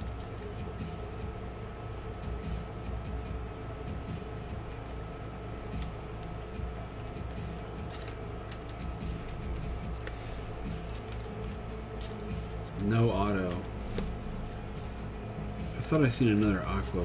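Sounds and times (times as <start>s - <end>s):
cards clicking and rustling: 0.0s - 1.2s, 4.4s - 14.2s, 15.8s - 17.0s
steady low hum: 0.0s - 17.0s.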